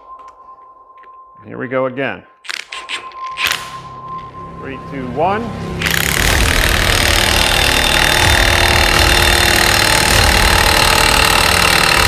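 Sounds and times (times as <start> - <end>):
impact wrench hammering: 5.8 - 12.0.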